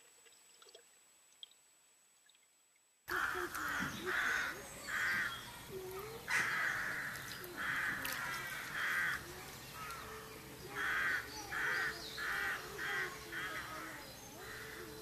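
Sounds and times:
bird calling: 0:03.1 - 0:15.0.

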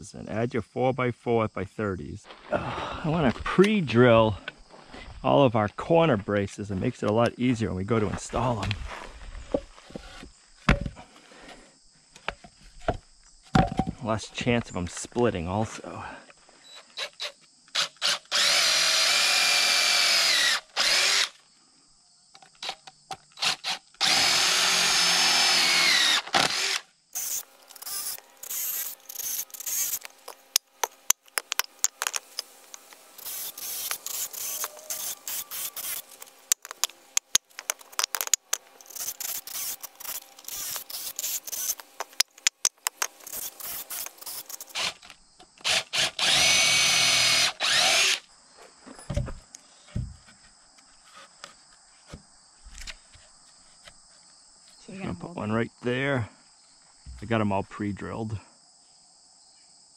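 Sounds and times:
wooden boards knocking: 0:12.9 - 0:14.0
cordless drill boring wood: 0:17.0 - 0:21.4, 0:23.4 - 0:48.2.

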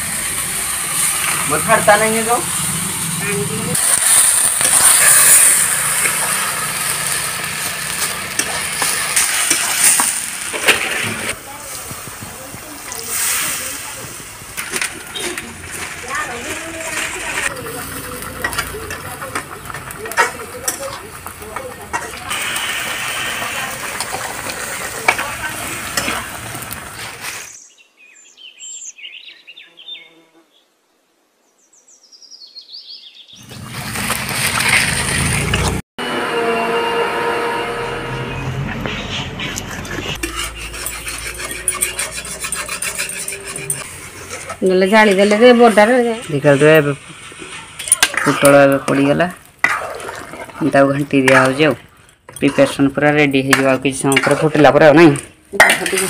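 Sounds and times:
food sizzling in a pan: 0:00.0 - 0:27.6, 0:40.2 - 0:56.0
spatula scraping and knocking pan: 0:04.0 - 0:13.4, 0:14.0 - 0:26.7, 0:38.8 - 0:56.0
bird chirps: 0:27.5 - 0:30.2.

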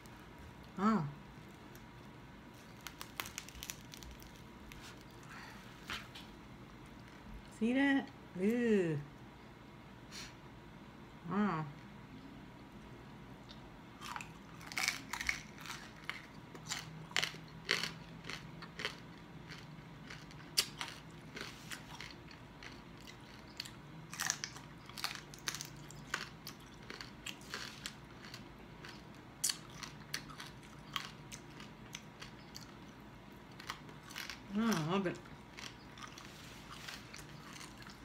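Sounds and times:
crispy skin crunching: 0:01.4 - 0:06.3.

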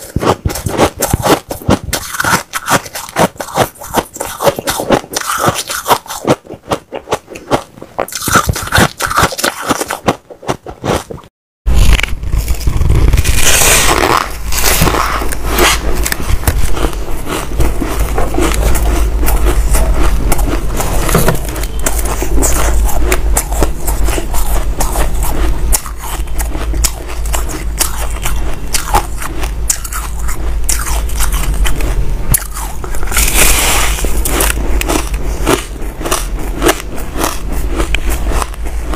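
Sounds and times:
crunching ice: 0:00.0 - 0:11.2, 0:11.8 - 0:38.9
low hum: 0:11.7 - 0:38.9.

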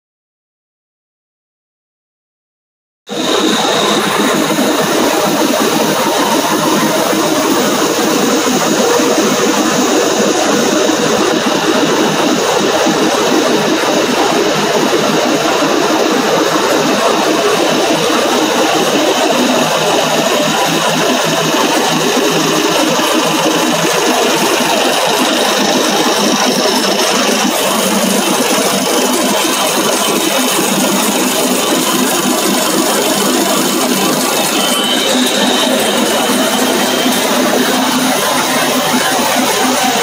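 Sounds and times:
extrusion line machine noise: 0:03.1 - 0:40.0.

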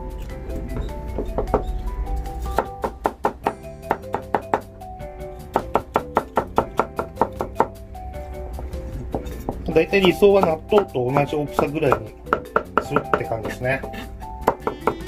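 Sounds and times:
background music: 0:00.0 - 0:15.0
knife chopping on cutting board: 0:02.5 - 0:04.7, 0:09.1 - 0:13.6, 0:14.4 - 0:15.0.

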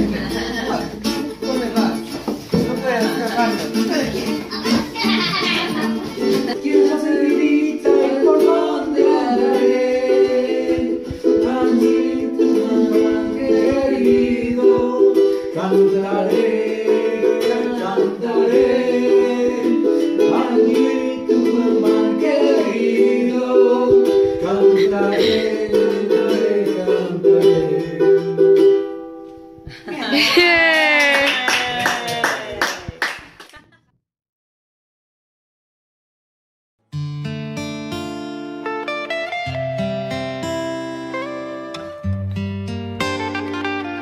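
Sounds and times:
ukulele strumming: 0:00.0 - 0:30.3, 0:37.0 - 0:44.0
man singing: 0:06.5 - 0:28.5.

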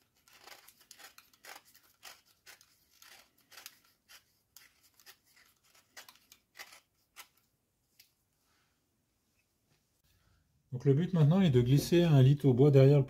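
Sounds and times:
knife blade scraping plasterboard: 0:00.0 - 0:07.4.

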